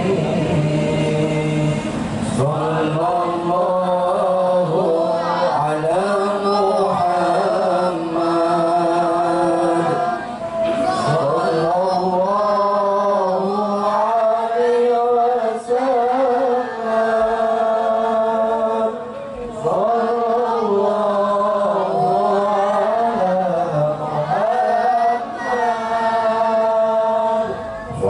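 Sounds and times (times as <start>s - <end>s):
man chanting into a microphone: 0.0s - 28.0s.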